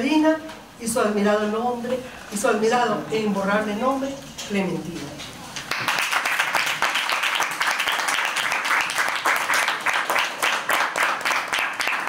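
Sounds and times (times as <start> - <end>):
audience applause: 5.7 - 12.0.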